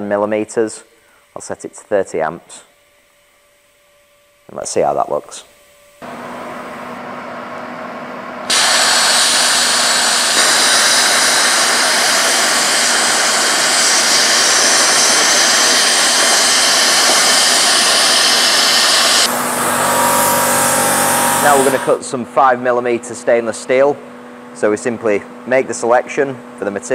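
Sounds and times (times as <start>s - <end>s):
plasma cutter arc hissing: 8.5s - 22.0s
quieter hiss: 8.5s - 22.0s.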